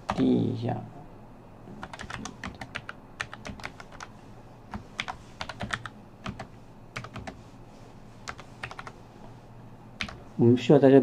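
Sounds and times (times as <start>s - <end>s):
computer keyboard typing: 0.1s - 0.3s, 1.8s - 4.1s, 4.7s - 7.4s, 8.2s - 9.0s, 10.0s - 10.2s.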